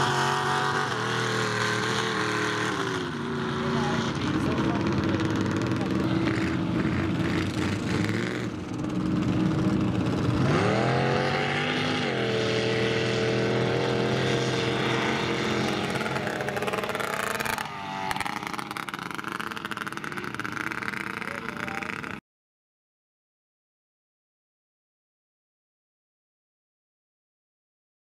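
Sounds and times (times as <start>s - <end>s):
truck engine revving: 0.0s - 22.2s.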